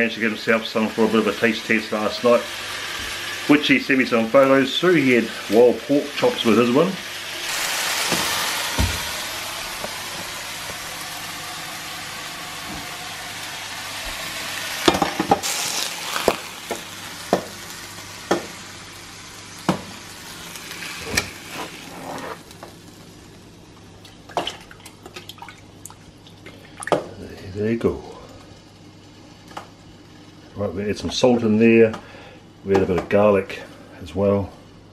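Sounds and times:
pork sizzling in a pan: 0:00.0 - 0:24.4.

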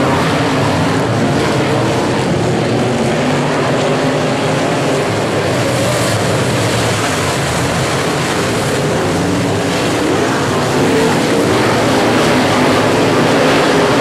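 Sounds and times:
race car engines running: 0:00.0 - 0:14.0.

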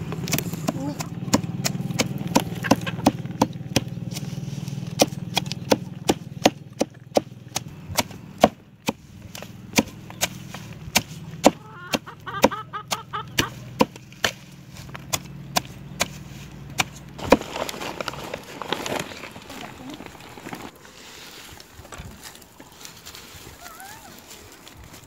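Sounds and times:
hatchet chopping greens on wood: 0:00.0 - 0:17.5.

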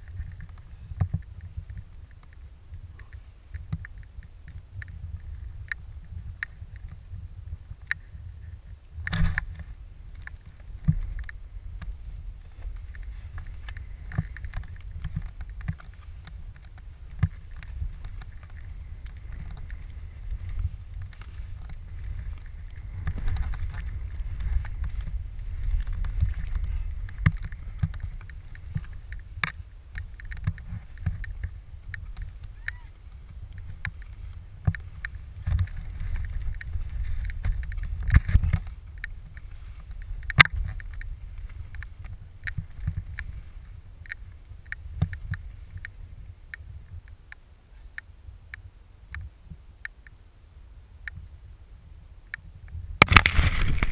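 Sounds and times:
skis swishing through powder snow: 0:09.7 - 0:29.8.

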